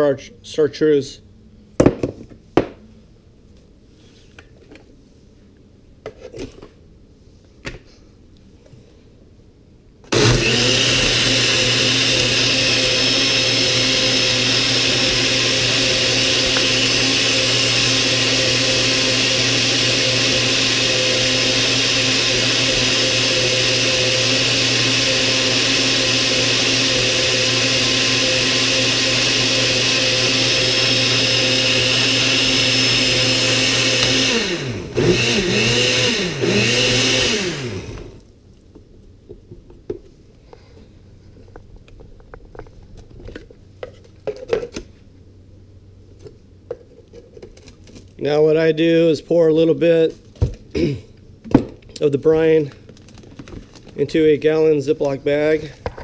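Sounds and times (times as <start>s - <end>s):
blender running: 10.1s - 38.2s.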